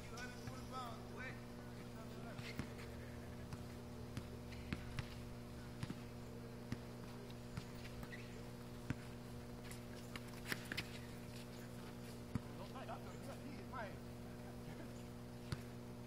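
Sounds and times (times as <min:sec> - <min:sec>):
steady low hum: 0:00.0 - 0:16.0
basketball bouncing on pavement: 0:00.4 - 0:00.6, 0:02.2 - 0:11.0, 0:12.3 - 0:13.6, 0:15.4 - 0:15.8.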